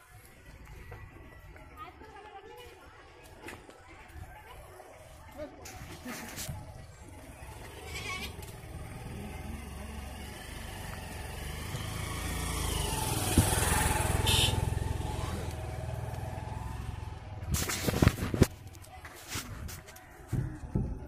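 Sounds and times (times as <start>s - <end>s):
vehicle engine passing by: 7.2s - 18.2s.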